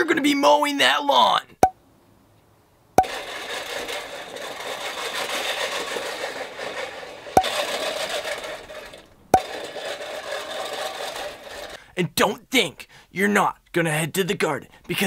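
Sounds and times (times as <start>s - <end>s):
reel mower whirring and clattering: 3.0s - 11.9s.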